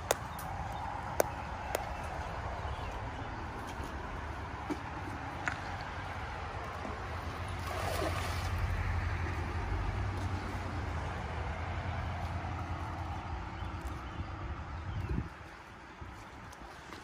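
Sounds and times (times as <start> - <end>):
wind rumble on microphone: 13.0 - 17.0.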